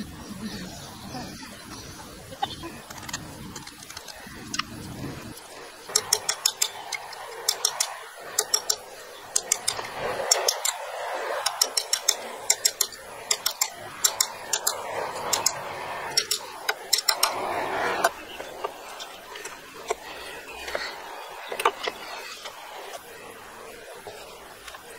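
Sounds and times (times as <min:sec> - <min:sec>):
metal parts tapping and clinking: 0:05.9 - 0:10.8, 0:11.4 - 0:17.3.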